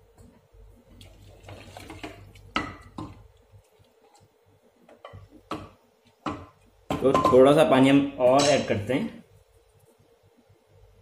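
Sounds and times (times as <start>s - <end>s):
ladle stirring rice in water: 0.9s - 4.3s.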